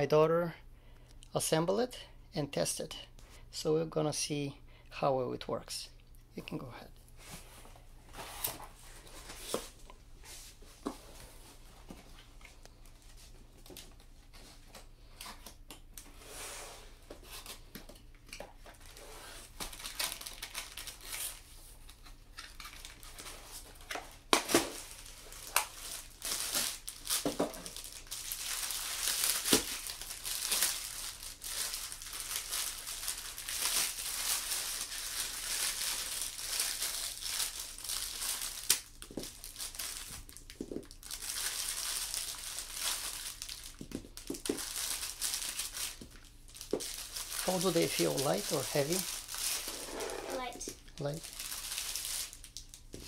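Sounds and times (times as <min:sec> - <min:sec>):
plastic bag crinkling: 0:18.8 - 0:21.5, 0:24.6 - 0:53.0.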